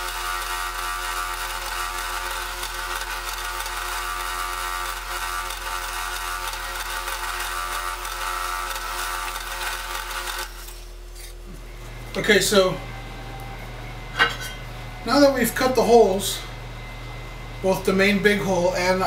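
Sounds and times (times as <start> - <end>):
drill press cutting metal: 0.0 - 11.4.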